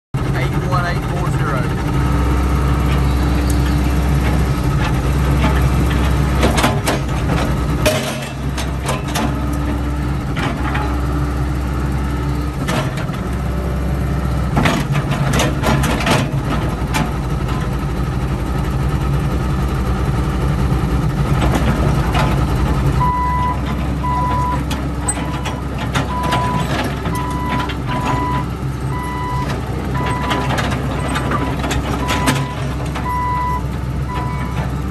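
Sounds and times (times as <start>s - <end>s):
excavator diesel engine running: 0.2s - 34.9s
backup alarm beeping: 23.0s - 24.6s, 26.1s - 30.5s, 31.3s - 34.6s.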